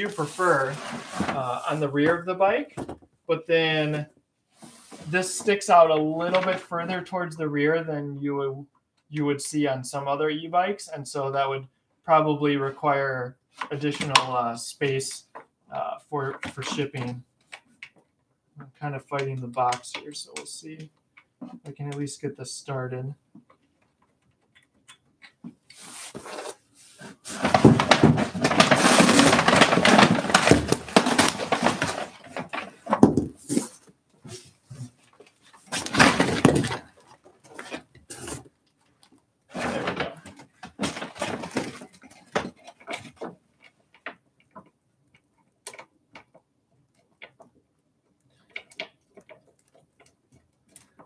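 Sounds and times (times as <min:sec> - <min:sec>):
cardboard box rustling and tearing: 0:27.3 - 0:32.6.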